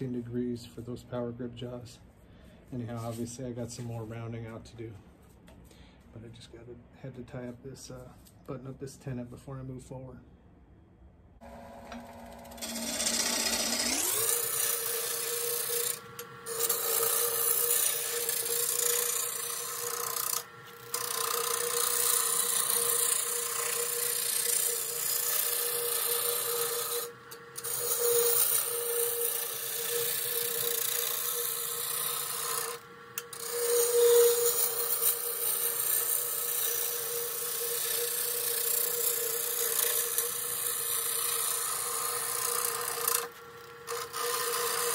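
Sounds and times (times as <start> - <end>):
wood lathe humming: 11.4 - 44.9
gouge scraping wood: 14.0 - 43.3.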